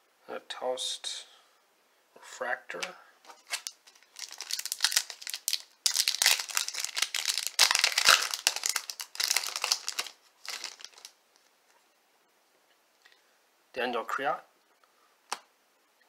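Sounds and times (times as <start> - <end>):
foil wrapper crinkling and tearing: 3.3 - 11.5.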